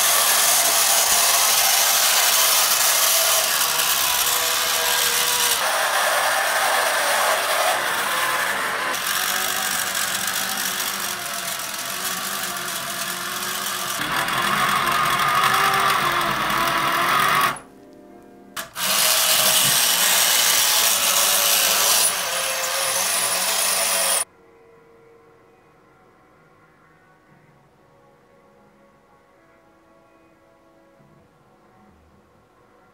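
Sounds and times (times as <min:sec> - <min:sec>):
toy truck electric motor whirring: 0:00.0 - 0:17.6, 0:18.6 - 0:24.2.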